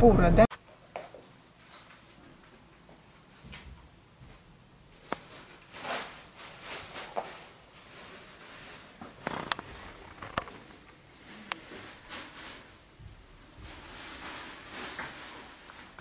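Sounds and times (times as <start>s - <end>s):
plastic packaging rustling: 5.0s - 16.0s.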